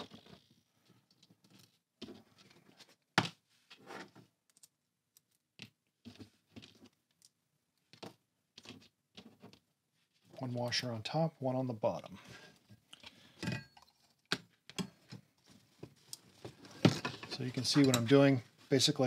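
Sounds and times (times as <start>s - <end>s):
bolts and washers clinking: 16.9s - 18.2s.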